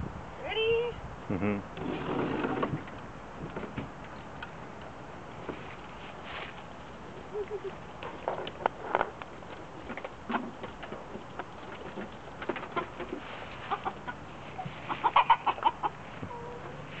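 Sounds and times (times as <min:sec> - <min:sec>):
chickens clucking: 0:09.9 - 0:17.0.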